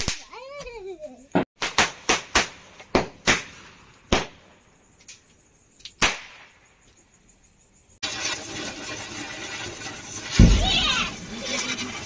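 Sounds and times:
firecrackers banging: 1.6s - 4.6s, 8.0s - 12.0s.

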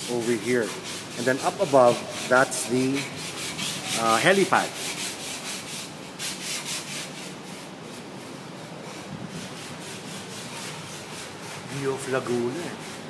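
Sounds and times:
even hiss: 0.0s - 13.0s
rhythmic scraping strokes: 0.0s - 13.0s.

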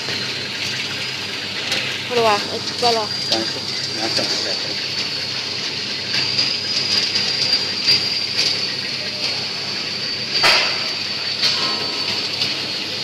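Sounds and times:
steady high whine: 0.0s - 13.0s
sharp clack: 10.4s - 12.2s.

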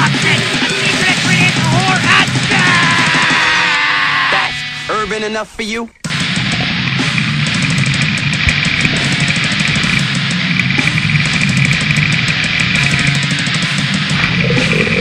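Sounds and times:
fast drumming and cymbals: 0.0s - 5.2s, 6.1s - 15.0s
distorted electric guitar: 0.0s - 5.3s, 6.0s - 15.0s.

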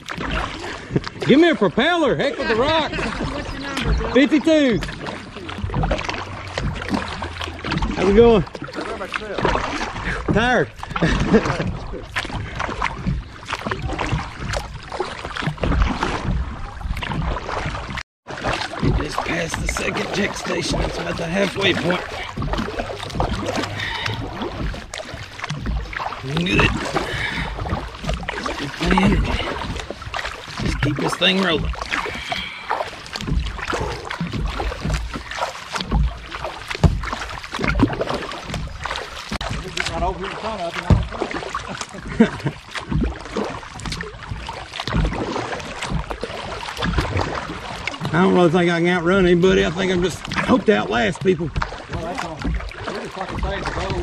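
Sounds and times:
kayak paddle splashing: 0.0s - 54.0s.

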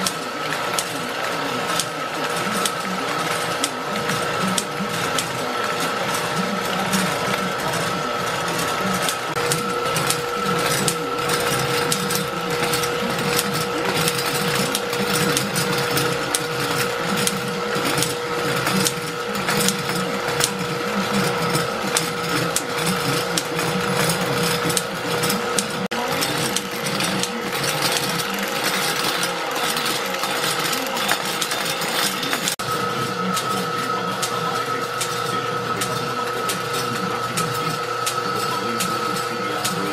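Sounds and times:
machine clattering: 0.0s - 39.9s.

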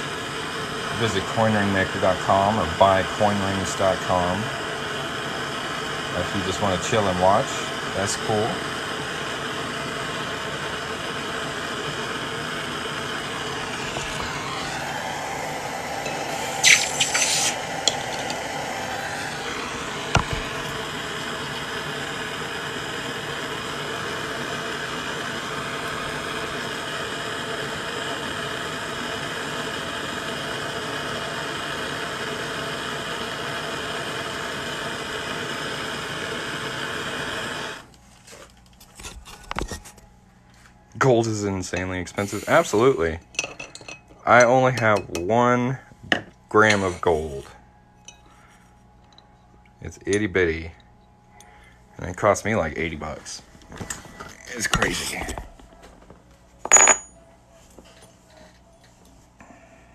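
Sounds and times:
hand torch hissing: 0.0s - 37.9s, 41.3s - 43.2s, 46.5s - 48.6s
metal clinks: 56.7s - 57.1s.

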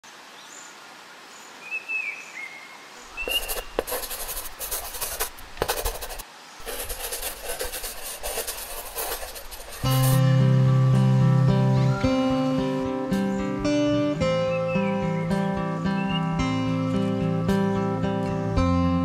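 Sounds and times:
pen scratching on paper: 3.2s - 10.2s
faint bird chirps: 14.2s - 18.6s.

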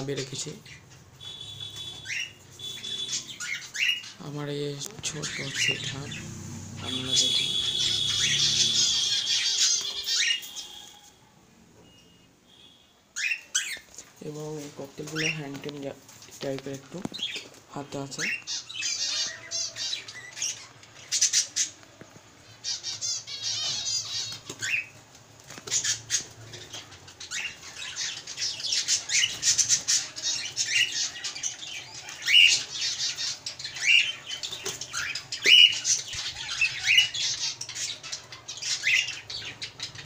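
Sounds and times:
cockatiels squawking: 0.6s - 4.2s, 5.0s - 6.2s, 6.8s - 11.1s, 13.2s - 13.9s, 18.2s - 21.9s, 22.5s - 40.0s.

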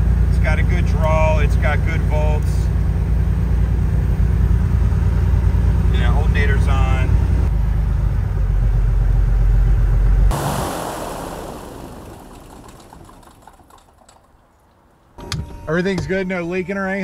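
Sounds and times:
piston engine idling: 10.3s - 14.9s.

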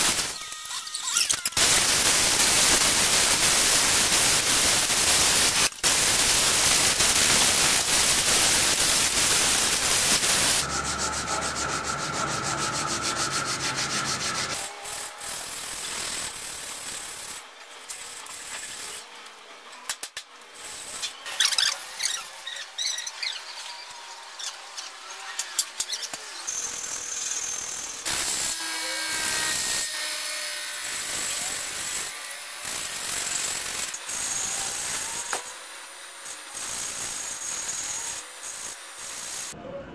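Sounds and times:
angle grinder grinding wood: 0.0s - 19.1s, 20.6s - 39.6s
sandpaper rubbing on wood: 1.6s - 17.2s.

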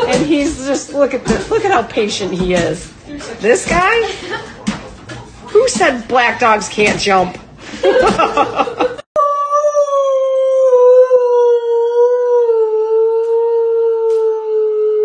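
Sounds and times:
dog howling: 9.2s - 15.0s.

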